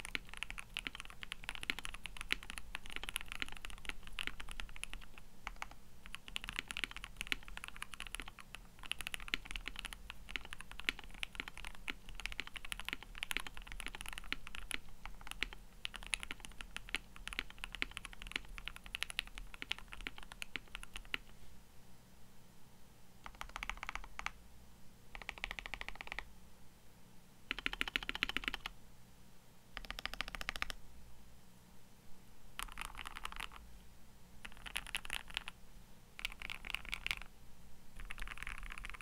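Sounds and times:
mechanical keyboard typing: 0:00.0 - 0:21.3, 0:23.2 - 0:24.4, 0:25.1 - 0:26.3, 0:27.5 - 0:28.7, 0:29.8 - 0:30.8, 0:32.6 - 0:33.6, 0:34.4 - 0:35.6, 0:36.2 - 0:37.3, 0:38.0 - 0:39.0.

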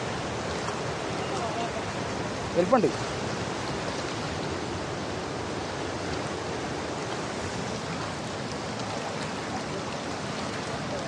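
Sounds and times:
river water washing against rocks: 0:00.0 - 0:11.0.

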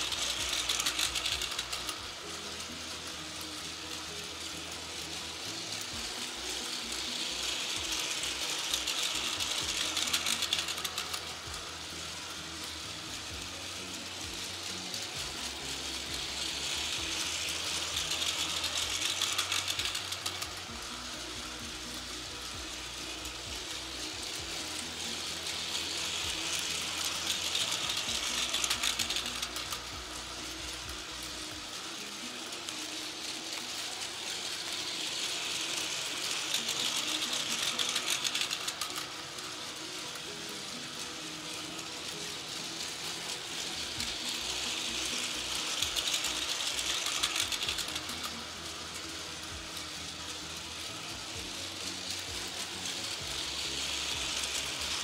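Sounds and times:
toy train motor whirring: 0:00.0 - 0:55.0
wheels clattering on plastic track: 0:00.0 - 0:55.0.

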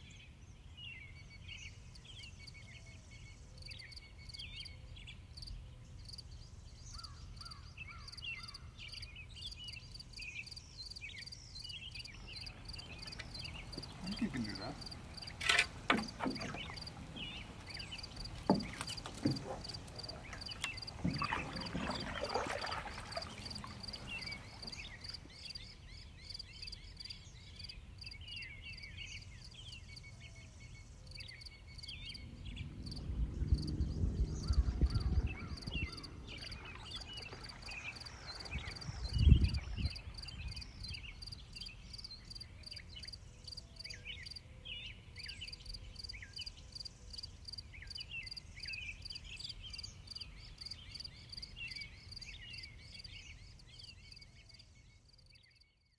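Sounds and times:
insects chirping: 0:09.4 - 0:25.7, 0:31.0 - 0:44.4
low thumps and rumbles: 0:31.9 - 0:40.5.

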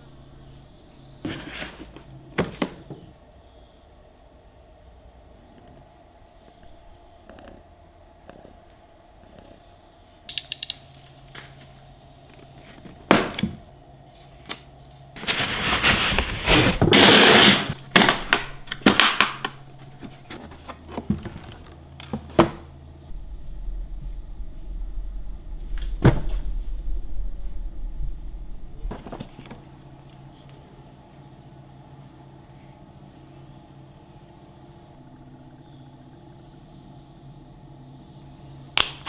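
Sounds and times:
cardboard sleeve scraping: 0:15.2 - 0:17.8.

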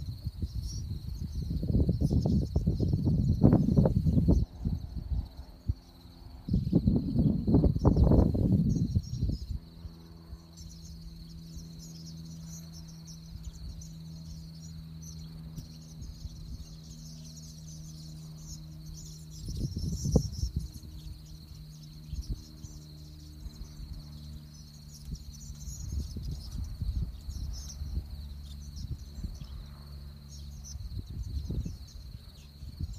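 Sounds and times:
steady low hum: 0:00.0 - 0:32.9
swallows twittering: 0:00.0 - 0:32.9.

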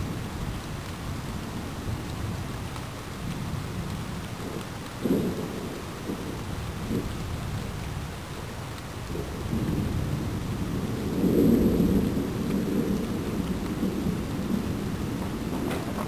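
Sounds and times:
steady rain: 0:00.0 - 0:16.0
thunder rumbling: 0:03.2 - 0:16.0.

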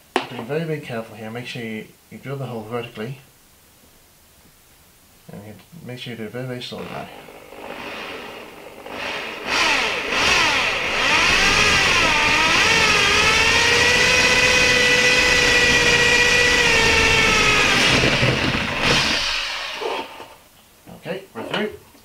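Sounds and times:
electric drill motor whine: 0:07.1 - 0:20.4.

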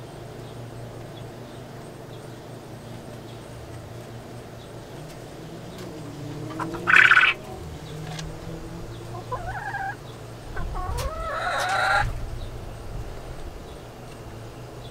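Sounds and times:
chickens calling: 0:00.0 - 0:14.9.

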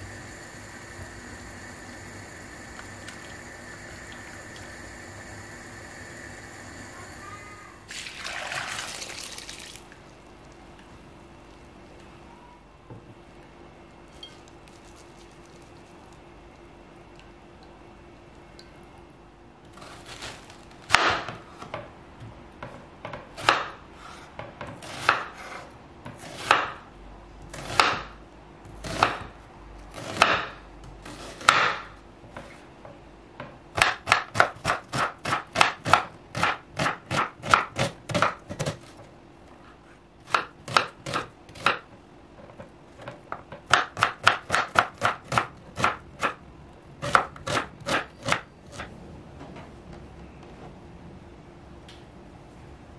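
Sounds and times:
knife chopping onion on wooden board: 0:23.1 - 0:26.8, 0:27.5 - 0:32.6, 0:33.5 - 0:39.0, 0:40.2 - 0:41.9, 0:43.0 - 0:46.4, 0:47.0 - 0:48.9.

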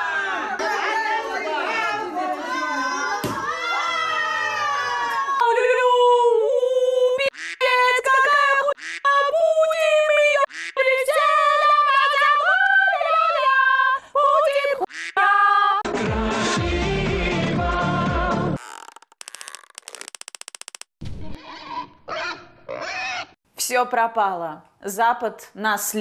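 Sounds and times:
woman singing unaccompanied: 0:05.4 - 0:15.8.

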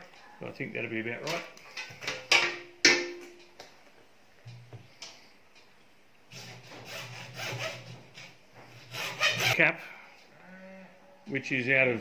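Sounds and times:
sharp ringing knocks: 0:02.2 - 0:03.4
hacksaw cutting plastic pipe: 0:06.3 - 0:08.0, 0:08.9 - 0:09.6.

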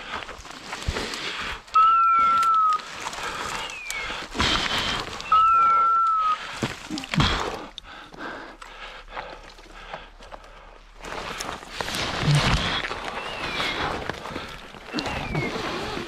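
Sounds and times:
brush rustling: 0:00.0 - 0:07.7, 0:10.6 - 0:16.0
twigs crackling: 0:00.0 - 0:16.0
beeper collar long beeps: 0:01.8 - 0:02.8, 0:05.2 - 0:06.4.

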